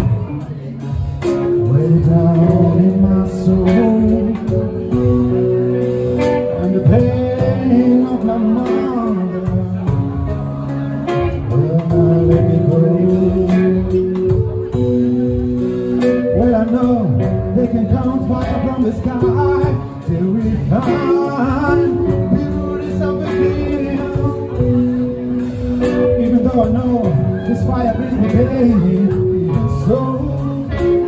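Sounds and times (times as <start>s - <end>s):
live rock band playing: 0.0s - 31.0s
man singing: 0.0s - 31.0s.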